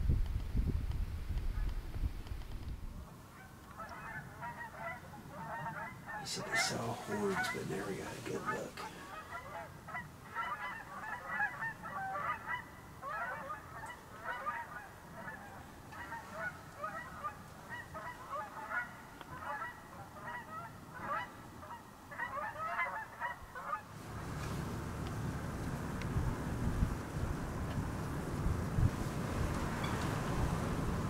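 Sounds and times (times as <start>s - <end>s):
low rush of wind: 0.0s - 31.0s
geese honking: 3.3s - 23.9s, 29.7s - 30.6s.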